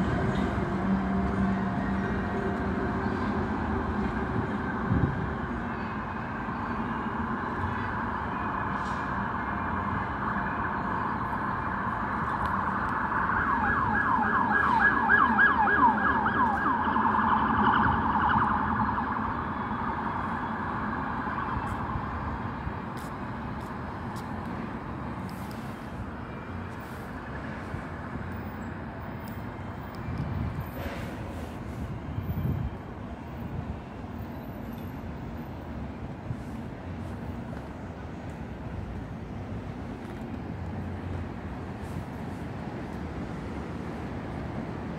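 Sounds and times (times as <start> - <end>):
street traffic noise: 0.0 - 44.9
emergency siren yelping: 7.5 - 22.5.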